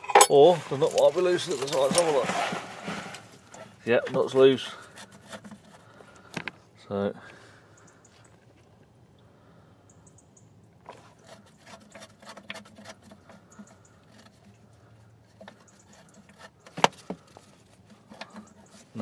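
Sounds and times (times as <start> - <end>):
hand tools clinking on metal: 0.0 - 2.2.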